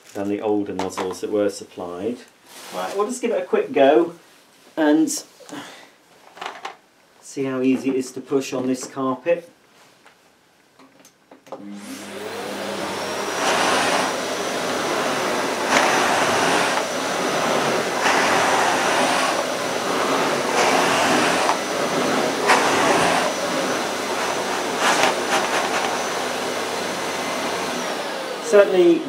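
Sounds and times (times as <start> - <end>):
vacuum head pushed on carpet: 11.6 - 28.8
vacuum cleaner motor whine: 11.6 - 29.0.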